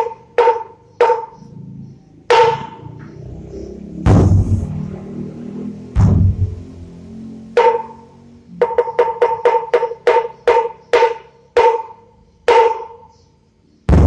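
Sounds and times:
deep drum boom: 4.0s - 4.9s, 6.0s - 6.7s.

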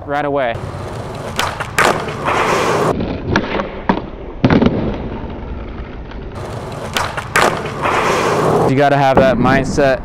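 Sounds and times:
skateboard wheels rolling: 0.5s - 4.0s, 4.6s - 9.8s
skateboard clacking on asphalt: 0.6s - 4.0s, 5.8s - 9.3s.

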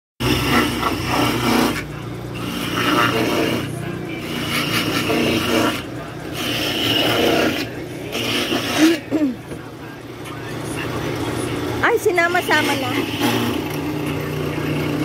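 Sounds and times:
coconut rasping on grater: 0.2s - 9.2s, 12.3s - 15.0s
grater motor humming: 0.2s - 15.0s.

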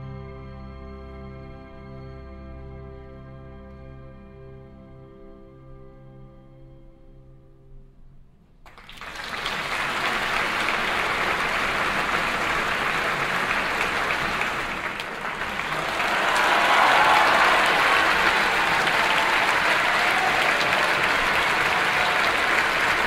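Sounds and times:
audience applause: 8.7s - 23.0s.

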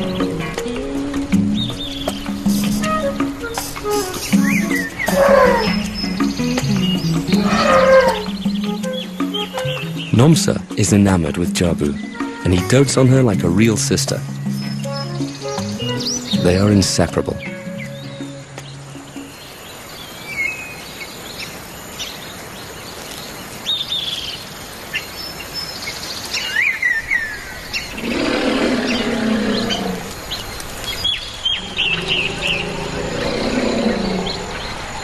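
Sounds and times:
elephant calling: 0.0s - 10.0s, 27.8s - 30.2s, 31.4s - 34.8s
birds chirping and whistling: 0.0s - 10.6s, 14.2s - 22.2s, 25.0s - 35.0s.

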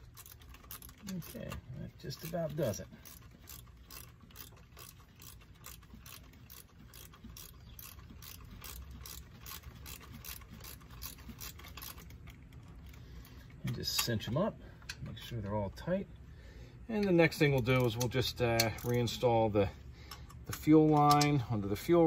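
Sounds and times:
ratchet wrench clicking: 0.0s - 13.0s, 17.0s - 19.2s.

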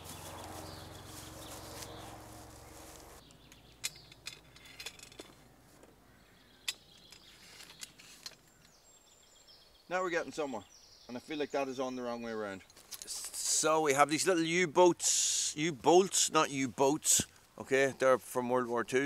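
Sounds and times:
metal parts clicking and tapping: 3.5s - 5.4s.

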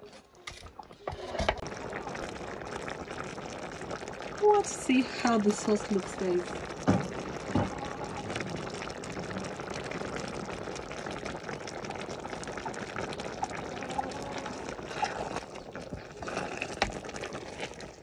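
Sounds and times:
stew bubbling at a boil: 0.0s - 18.0s
small crackling pops: 1.6s - 18.0s
wooden spoon stirring stew: 13.0s - 18.0s.

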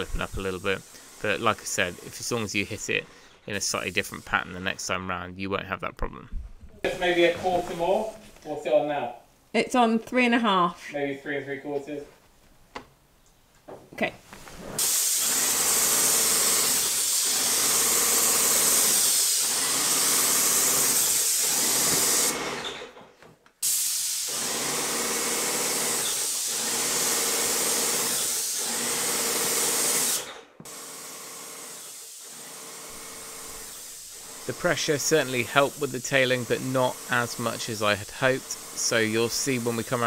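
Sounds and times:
paint sprayer hissing: 0.0s - 4.8s, 14.8s - 22.6s, 23.6s - 40.0s
sprayer hum: 14.8s - 22.5s, 23.6s - 40.0s.

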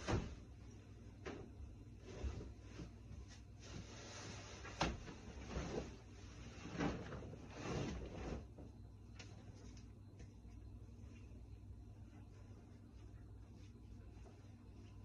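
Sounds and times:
bed linen rustling: 0.0s - 8.7s, 12.0s - 15.0s.

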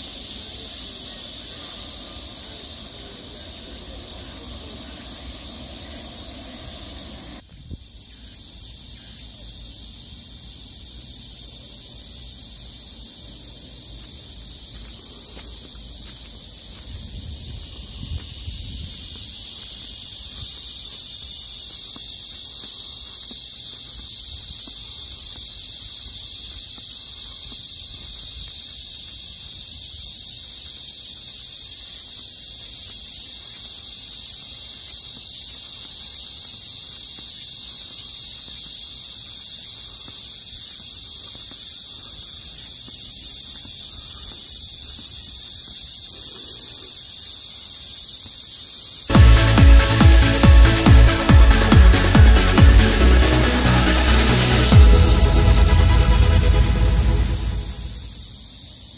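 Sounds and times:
insects chorus: 0.0s - 58.9s
low rumble: 54.7s - 58.2s.

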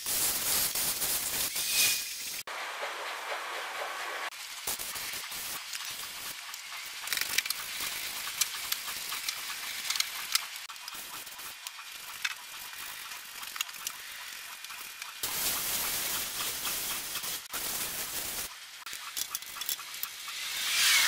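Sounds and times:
hose nozzle spraying water: 0.0s - 21.0s
pressure sprayer hissing: 0.0s - 21.0s.

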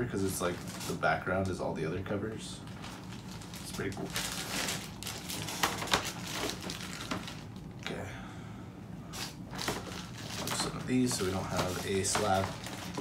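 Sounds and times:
faint low hum: 0.0s - 13.0s
packaging rustling: 0.2s - 1.6s, 2.6s - 7.7s, 9.1s - 13.0s.

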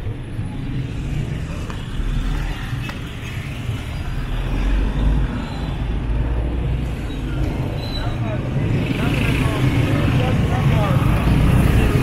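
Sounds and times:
passing car engines rumbling: 0.0s - 12.0s.

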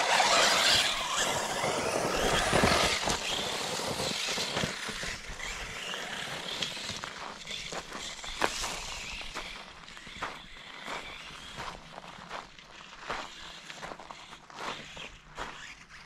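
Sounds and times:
tyres spraying grit: 0.0s - 11.5s
electric motor whine: 0.0s - 12.0s.

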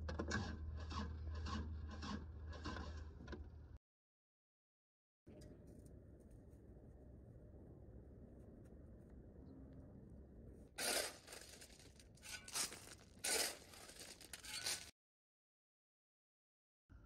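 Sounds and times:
shovel crunching into gravel: 10.8s - 14.9s.

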